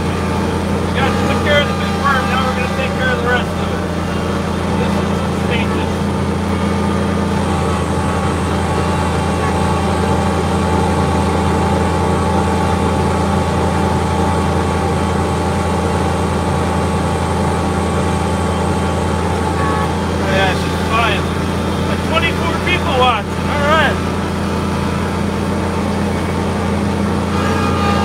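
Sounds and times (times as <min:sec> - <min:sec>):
snowblower cutting through snow: 0:00.0 - 0:28.0
tractor diesel engine under load: 0:00.0 - 0:28.0.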